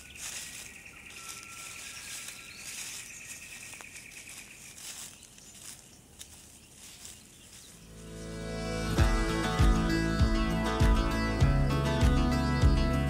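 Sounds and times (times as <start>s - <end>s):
rustles in dry leaf litter: 0.0s - 9.0s
guitar music: 8.0s - 13.0s.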